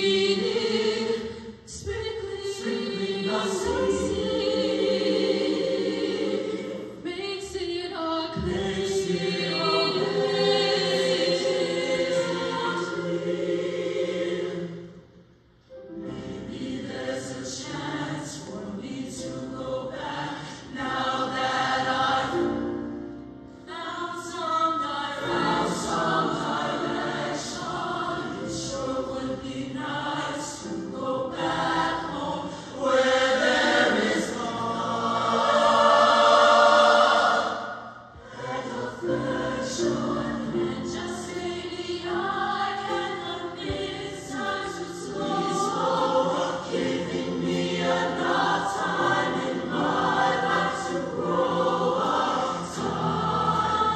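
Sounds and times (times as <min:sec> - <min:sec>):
choir singing: 0:00.0 - 0:53.9.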